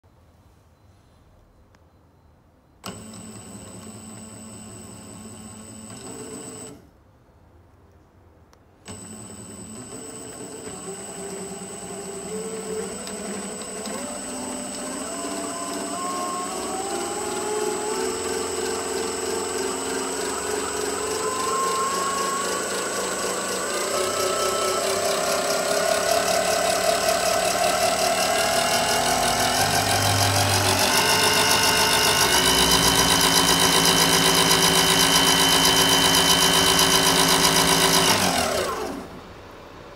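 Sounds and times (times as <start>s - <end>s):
electric motor whine: 8.9s - 39.3s
steady high tone: 13.9s - 37.8s.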